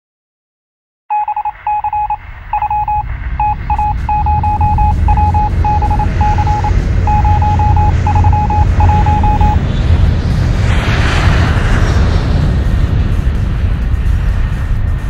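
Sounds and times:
high beep tone pulses: 1.1 - 9.6
engine rumble inside vehicle: 1.1 - 15.0.

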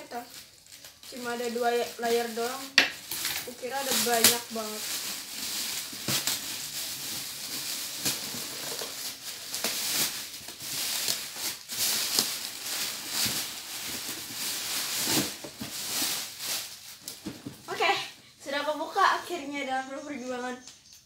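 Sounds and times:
plastic bags rustling: 0.0 - 18.1.

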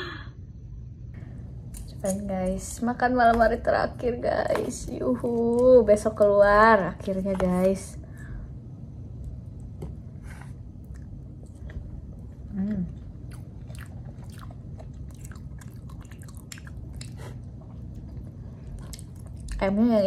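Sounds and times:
person chewing: 10.8 - 19.6.

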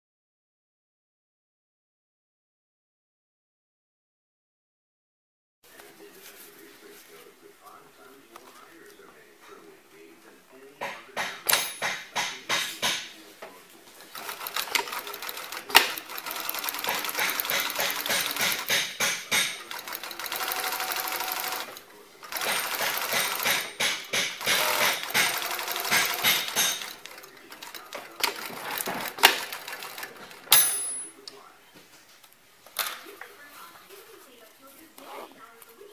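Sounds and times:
sewing machine needle rattle: 14.1 - 30.6.

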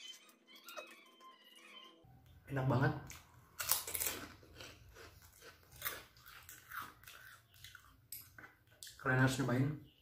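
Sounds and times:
person chewing crunchy cracker: 3.0 - 9.0.

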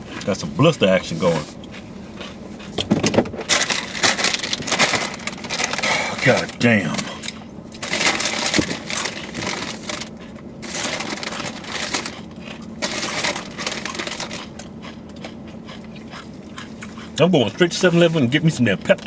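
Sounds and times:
chips being chewed: 7.2 - 17.2.

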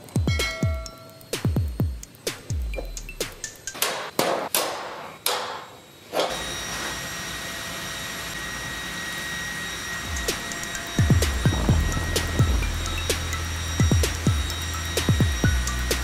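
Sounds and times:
faint steady tones: 0.0 - 4.2, 8.3 - 16.0
engine room machinery hum: 0.0 - 16.0
sharp ringing knocks: 0.2 - 1.2.

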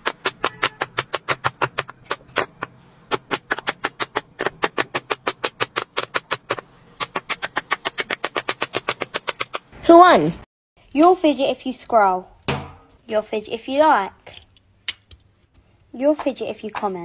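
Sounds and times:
pop-it fidget toy bubbles popping: 0.0 - 9.8.

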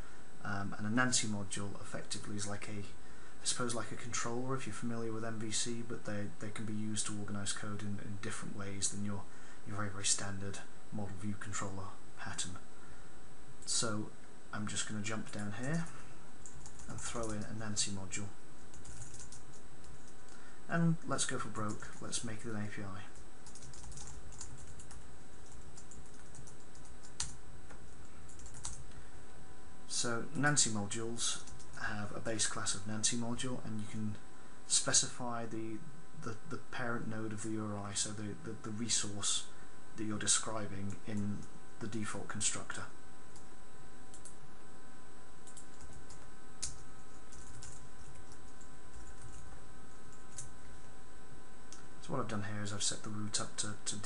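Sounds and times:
computer keyboard typing: 16.4 - 17.6, 18.7 - 20.3, 23.4 - 27.4, 28.0 - 28.8, 45.4 - 49.4, 50.1 - 50.5.

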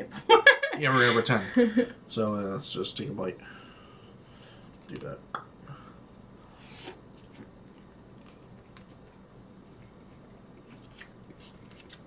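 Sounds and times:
quiet chewing: 6.4 - 12.0.

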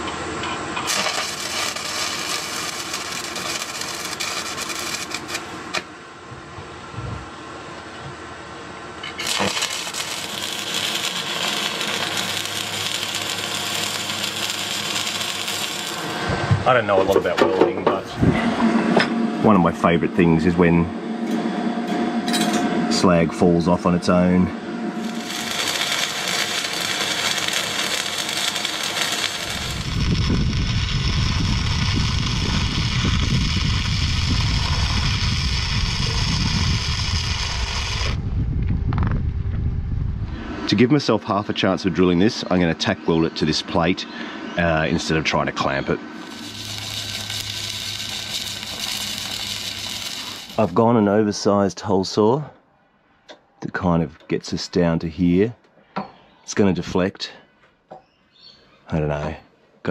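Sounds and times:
welding arc sizzling: 0.7 - 5.9, 9.0 - 17.3, 23.9 - 38.2, 45.8 - 51.4
rough deep rumbling: 29.4 - 40.4.

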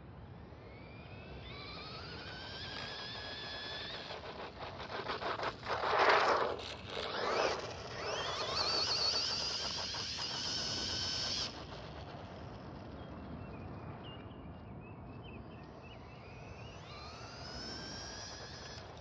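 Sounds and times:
rc car electric motor whining: 0.6 - 13.0, 15.9 - 19.0.

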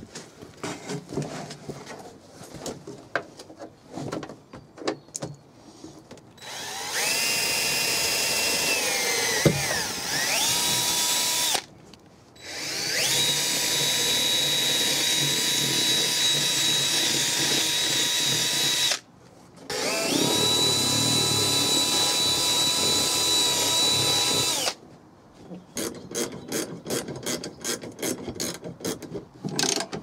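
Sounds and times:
cordless drill whining: 6.4 - 11.7, 12.4 - 19.0, 19.7 - 24.8.

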